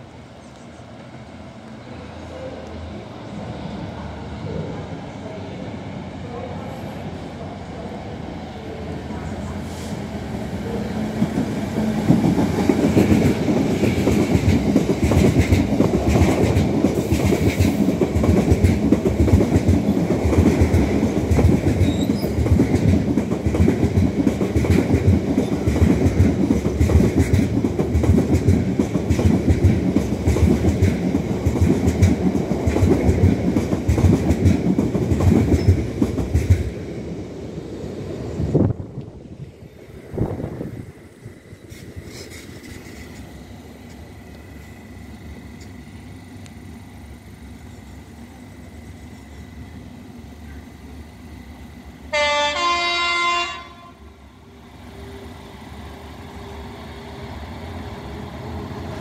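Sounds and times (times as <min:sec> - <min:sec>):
diesel locomotive rumble: 0:06.2 - 0:59.0
train wheels clattering on track: 0:09.1 - 0:37.2, 0:40.2 - 0:49.7.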